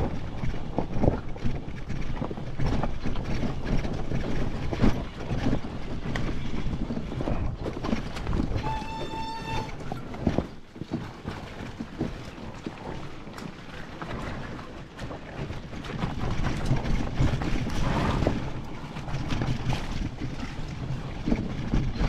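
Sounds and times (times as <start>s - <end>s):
wind on microphone: 0.0s - 22.0s
steady beep-like tone: 8.6s - 9.8s.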